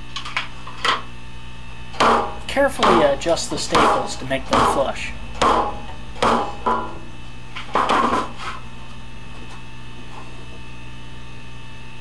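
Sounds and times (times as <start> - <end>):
steady low hum: 0.0 - 12.0
hammer tapping staples into wood: 2.0 - 3.1.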